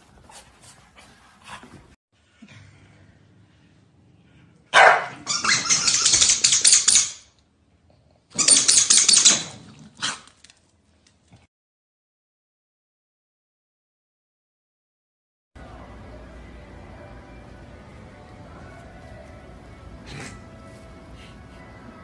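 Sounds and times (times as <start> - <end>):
dogs snarling and barking: 4.7 - 7.1, 7.8 - 10.5, 19.9 - 20.6.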